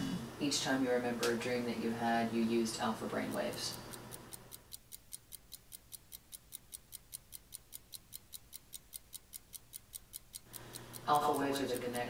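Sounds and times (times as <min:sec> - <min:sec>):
rapid even ticking: 0:02.5 - 0:12.0.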